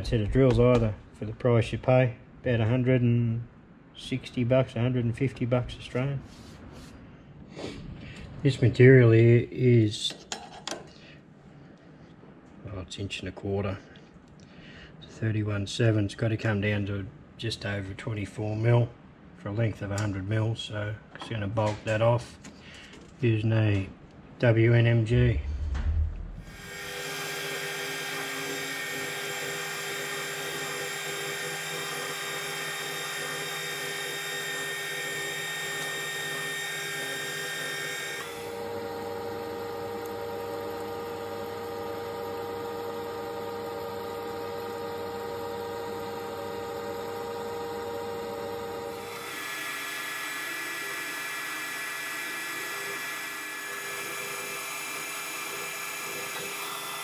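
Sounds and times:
metal lathe whine: 26.5 - 57.0.

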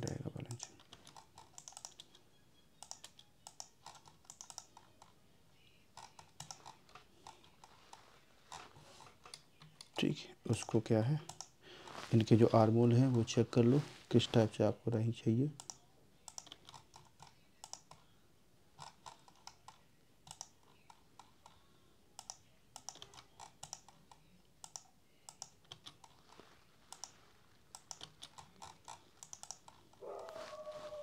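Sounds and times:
computer mouse clicking: 0.0 - 2.2, 2.8 - 5.2, 5.9 - 10.0, 10.6 - 11.6, 15.6 - 18.1, 18.8 - 21.6, 22.2 - 26.3, 26.9 - 30.0
keyboard clicking: 0.0 - 2.2, 2.8 - 5.1, 6.0 - 7.8, 10.6 - 11.5, 15.6 - 18.0, 22.2 - 26.2, 26.9 - 29.9.

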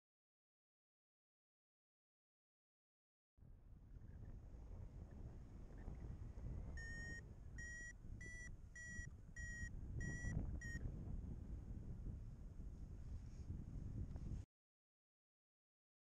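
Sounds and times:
wind on microphone: 3.4 - 14.5
variometer beeping: 6.8 - 10.8.

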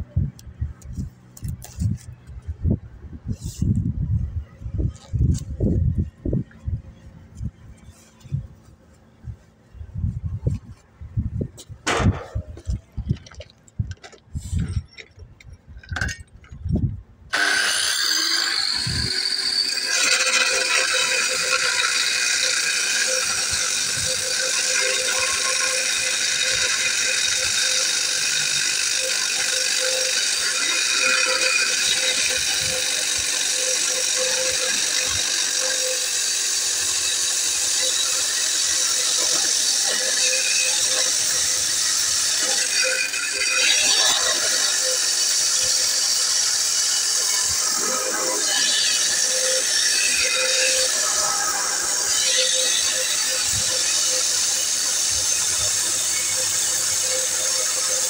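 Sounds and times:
angle grinder cutting stone: 17.3 - 58.0.

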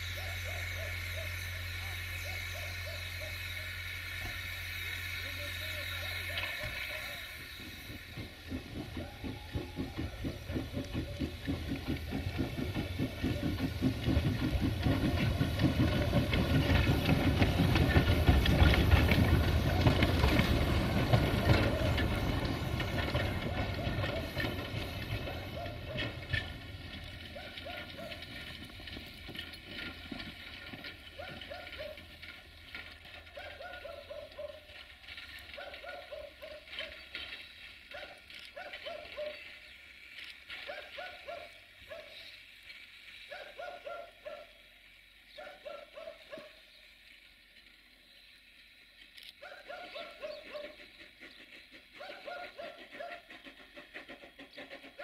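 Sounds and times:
steam locomotive exhaust: 0.0 - 35.4, 50.4 - 55.0.

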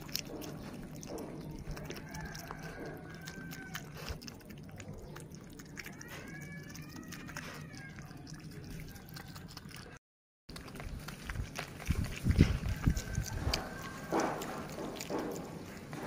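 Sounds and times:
young animal whimpering: 0.0 - 4.2, 5.0 - 10.0, 12.3 - 15.2
clicking sounds of eating: 0.0 - 16.0.

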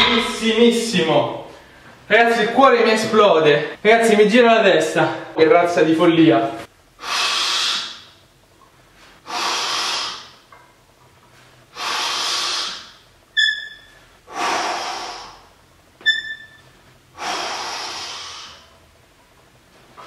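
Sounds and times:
man breathing hard: 7.0 - 8.1, 9.2 - 10.4, 11.7 - 13.0, 14.3 - 15.6, 17.2 - 18.8.

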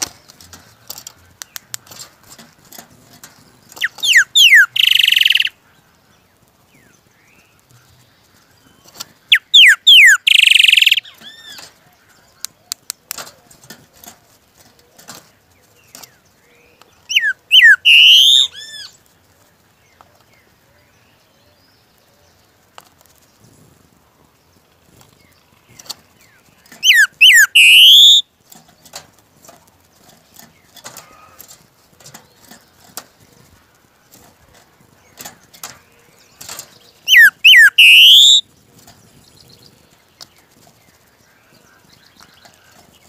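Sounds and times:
faint clicks: 0.0 - 4.1, 10.3 - 16.2, 22.6 - 23.4
bird singing whistled notes: 3.7 - 5.6, 8.8 - 11.6, 17.1 - 18.9, 26.7 - 28.3, 36.8 - 38.5.

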